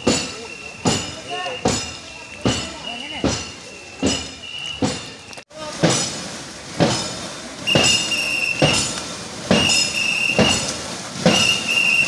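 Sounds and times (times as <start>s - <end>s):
shrill whistle: 0.1s - 5.4s, 7.7s - 8.8s, 9.5s - 10.6s, 11.3s - 12.0s.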